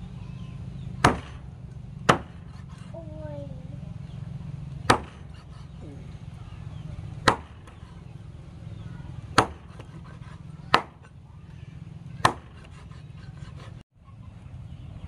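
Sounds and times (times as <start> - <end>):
cleaver chopping on wooden block: 1.0 - 1.4, 2.0 - 2.8, 4.8 - 5.5, 7.2 - 7.8, 9.3 - 11.1, 12.2 - 13.7.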